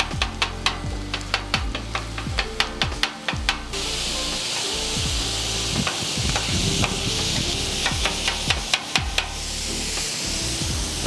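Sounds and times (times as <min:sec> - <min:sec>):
meat sizzling on a griddle: 0:00.0 - 0:11.0
chopper blade clacking on griddle: 0:05.8 - 0:09.4.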